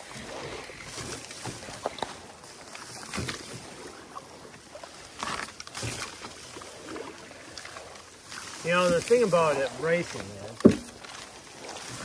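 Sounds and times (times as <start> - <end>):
rice stalks swishing against canoe: 0.0 - 12.0
wooden sticks knocking: 10.6 - 11.0.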